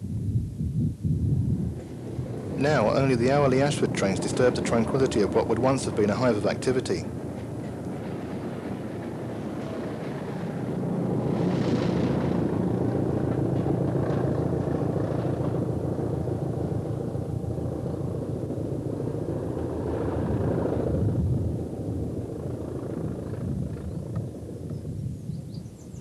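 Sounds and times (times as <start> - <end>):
train wheels on rails: 1.7 - 17.2
diesel train running past: 1.8 - 23.4.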